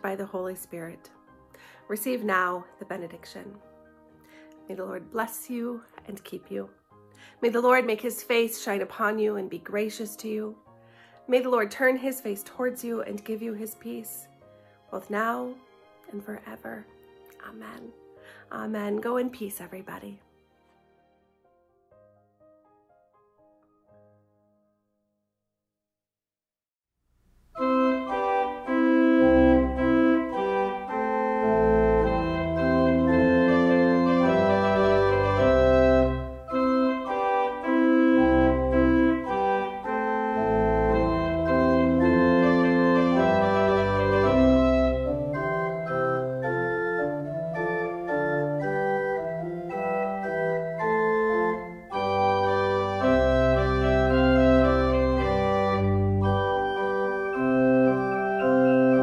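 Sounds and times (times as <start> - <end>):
church organ playing chords: 27.6 - 59.0.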